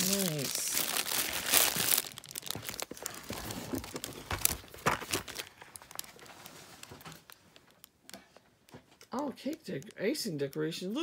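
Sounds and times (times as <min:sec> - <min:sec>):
packaging rustling and crinkling: 0:00.0 - 0:08.5
light clicks and taps: 0:05.6 - 0:11.0.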